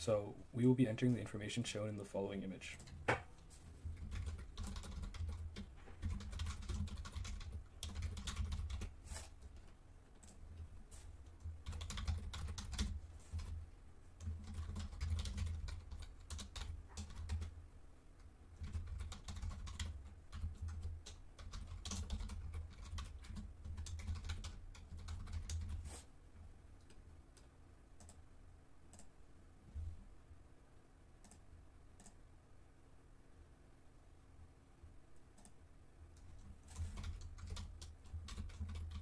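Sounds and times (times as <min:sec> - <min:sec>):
typing on a computer keyboard: 0:03.9 - 0:10.4, 0:11.4 - 0:13.6, 0:14.2 - 0:17.6, 0:18.6 - 0:25.8, 0:26.8 - 0:28.2, 0:36.2 - 0:39.0.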